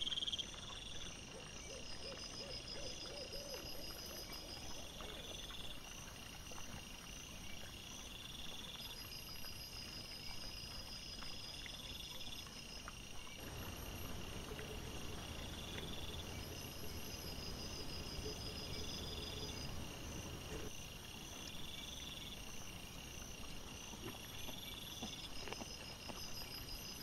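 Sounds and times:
insects chirping: 0:00.0 - 0:27.0
steady background hiss: 0:13.3 - 0:21.6.

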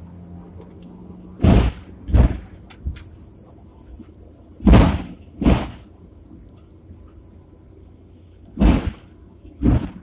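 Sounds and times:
tram running: 0:00.0 - 0:10.0
heavy tram clunks: 0:01.4 - 0:07.3.

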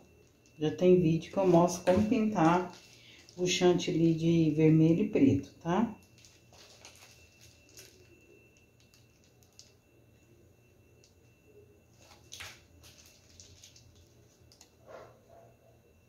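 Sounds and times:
piping bag squishing: 0:01.3 - 0:04.2, 0:06.0 - 0:09.8, 0:12.0 - 0:14.7.

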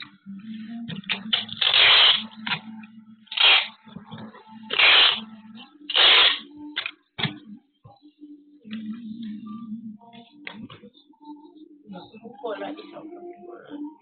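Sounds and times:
packing tape screeching: 0:01.4 - 0:02.4, 0:03.3 - 0:03.8, 0:04.7 - 0:05.3, 0:05.9 - 0:06.5.

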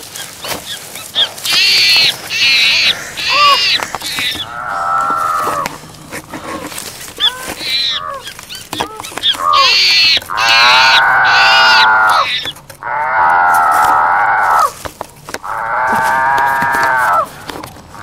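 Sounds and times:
high-pitched shrieking: 0:01.1 - 0:05.7, 0:07.2 - 0:14.7.

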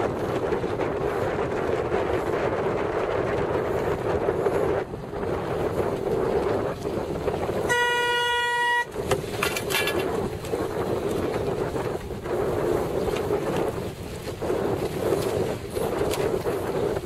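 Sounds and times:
wind buffeting microphone: 0:00.0 - 0:17.0
horn blast: 0:07.6 - 0:09.0.

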